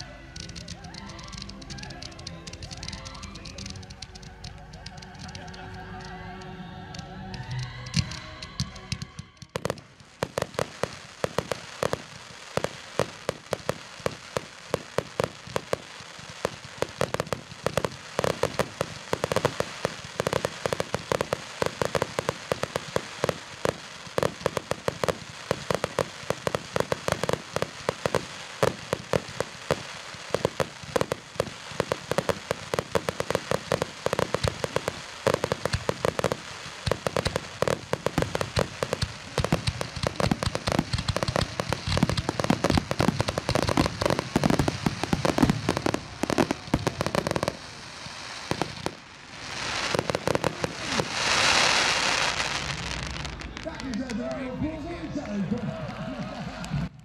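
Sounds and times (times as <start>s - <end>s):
fireworks crackling and banging: 0.0s - 57.0s.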